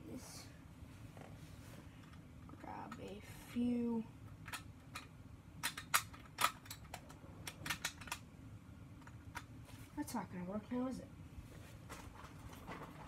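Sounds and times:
plastic parts clicking and clattering: 4.3s - 8.2s, 11.9s - 13.0s.

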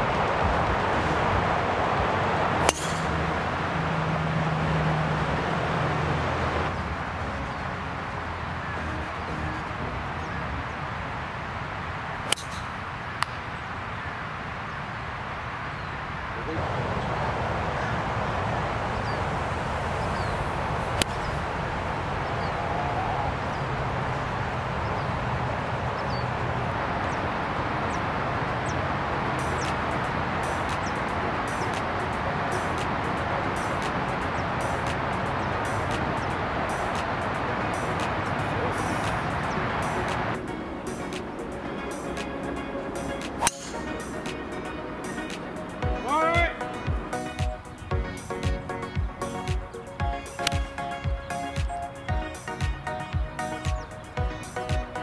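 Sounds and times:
outdoor background noise: 0.0s - 55.0s
golf club striking ball: 2.6s - 3.4s, 12.3s - 13.4s, 21.0s - 21.2s, 43.3s - 44.4s.

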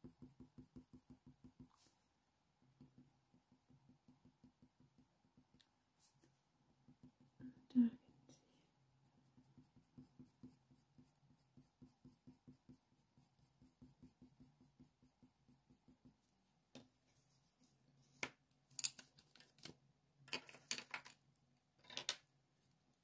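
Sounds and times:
pencil scratching on paper: 0.0s - 2.1s, 2.7s - 7.4s, 8.6s - 16.3s
pencils clicking and rustling: 18.2s - 22.3s.

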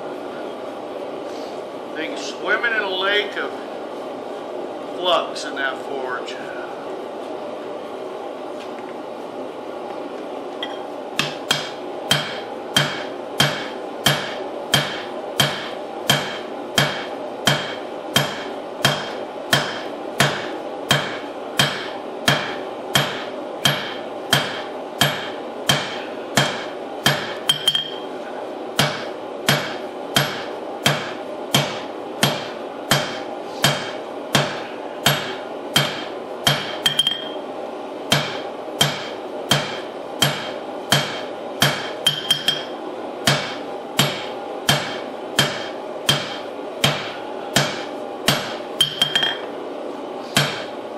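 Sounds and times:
hammer striking metal on anvil: 10.6s - 28.0s, 28.8s - 37.4s, 38.1s - 49.5s, 50.4s - 50.7s.

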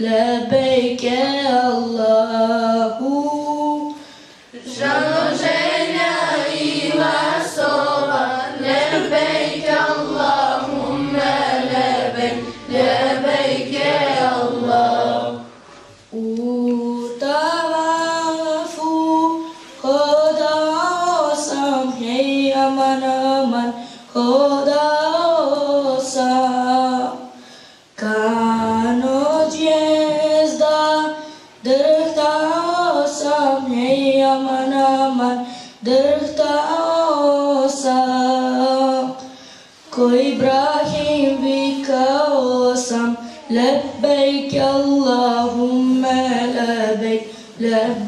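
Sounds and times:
children singing in unison: 4.6s - 15.6s, 28.0s - 48.0s.

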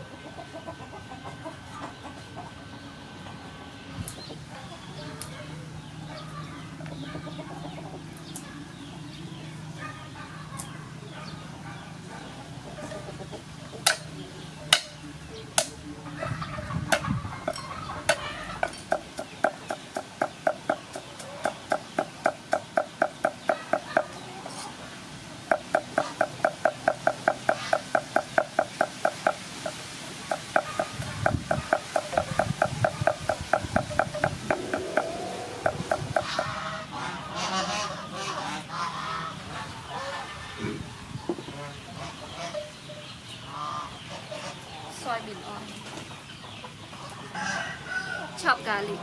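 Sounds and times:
cleaver chopping on wooden block: 14.7s - 15.0s, 18.9s - 24.1s, 25.5s - 29.4s, 30.3s - 36.5s.

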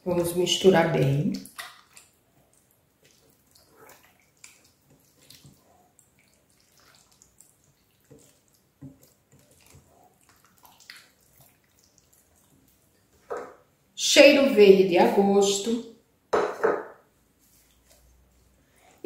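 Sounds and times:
spoon stirring sauce in pot: 0.2s - 13.6s.

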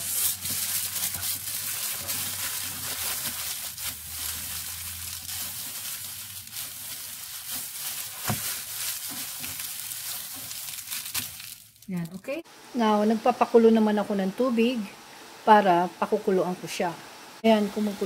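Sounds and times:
aluminium foil crinkling: 0.0s - 12.3s.

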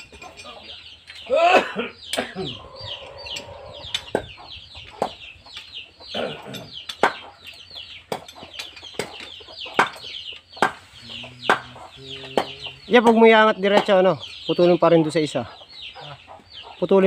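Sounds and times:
chicks peeping: 1.9s - 17.0s
sharp knocks: 8.1s - 10.9s, 11.5s - 14.0s.

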